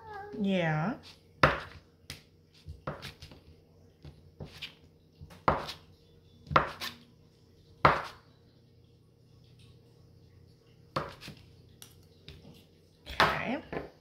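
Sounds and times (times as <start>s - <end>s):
knife chopping on plastic board: 1.4s - 3.4s, 5.3s - 5.8s, 6.4s - 7.0s, 7.8s - 8.2s, 11.0s - 11.4s.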